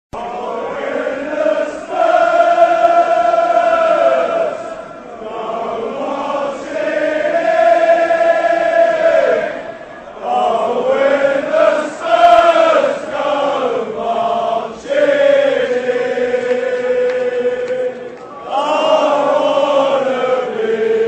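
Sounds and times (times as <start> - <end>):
voices chanting in chorus: 0.2 - 21.0.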